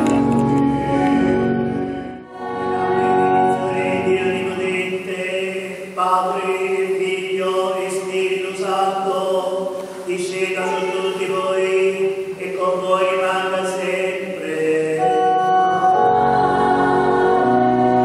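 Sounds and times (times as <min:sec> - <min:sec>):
choir chanting: 0:02.3 - 0:05.7, 0:12.8 - 0:18.0.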